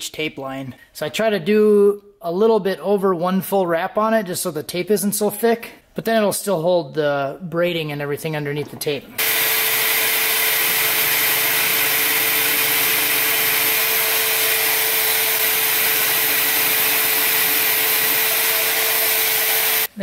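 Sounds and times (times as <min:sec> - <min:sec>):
band saw whirring: 0:09.2 - 0:19.9.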